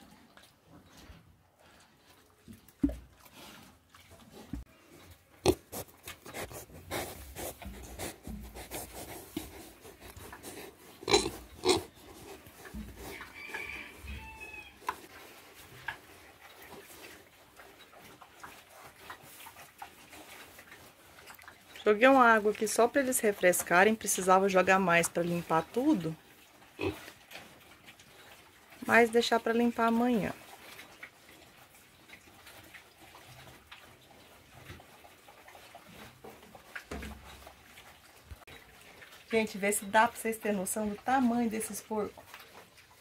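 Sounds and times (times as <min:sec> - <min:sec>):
pigs snuffling: 0:00.0 - 0:43.0
piglets scuffing on wet concrete: 0:01.7 - 0:17.6
pigs grunting: 0:05.3 - 0:13.3, 0:26.8 - 0:27.2
pig grunts: 0:10.1 - 0:12.2, 0:26.8 - 0:27.1.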